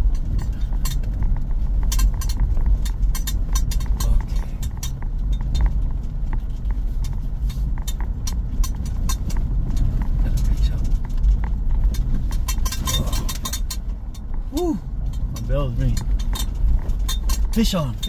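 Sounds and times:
car rattles and clicks: 0.0s - 18.0s
car rumble on dirt track: 0.0s - 18.0s.

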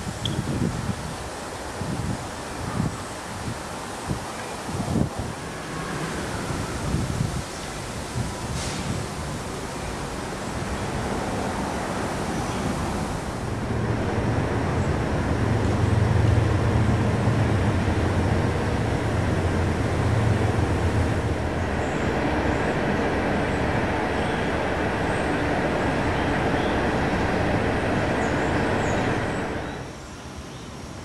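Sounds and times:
traffic hum: 2.8s - 31.0s
heavy vehicle rumbling past: 5.0s - 29.9s.

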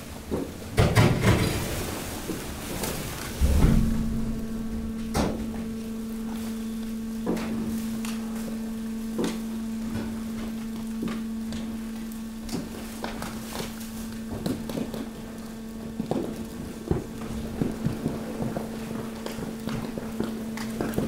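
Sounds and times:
thud: 3.4s - 6.9s
sharp knocks: 3.4s - 7.4s
hydraulic press hum: 3.4s - 13.6s.

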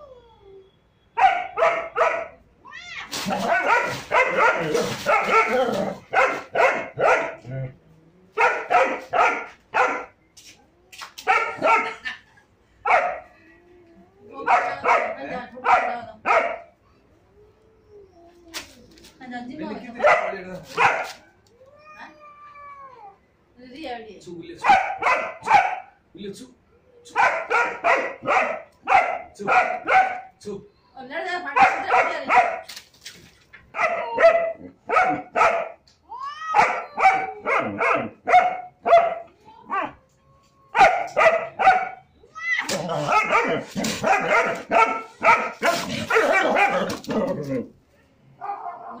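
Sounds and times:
dog barking sharply: 1.2s - 2.4s, 3.3s - 7.4s, 8.4s - 10.1s, 11.2s - 12.0s, 12.9s - 13.2s, 14.5s - 16.7s, 20.0s - 21.3s, 24.6s - 26.0s, 27.1s - 30.3s, 31.6s - 32.7s, 33.7s - 35.8s, 36.6s - 39.3s, 40.8s - 42.0s, 43.0s - 47.0s
dog rising cry: 36.2s - 38.2s.

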